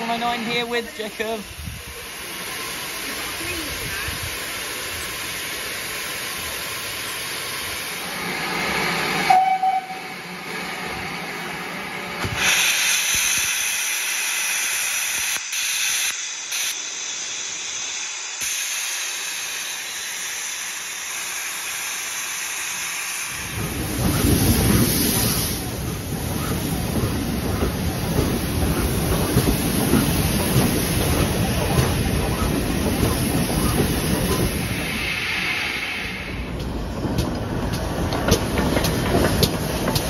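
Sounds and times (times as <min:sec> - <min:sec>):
low rumble of train rolling in: 0:00.0 - 0:14.6, 0:16.2 - 0:40.0
steam hissing: 0:00.0 - 0:40.0
steam whistle: 0:09.2 - 0:10.2.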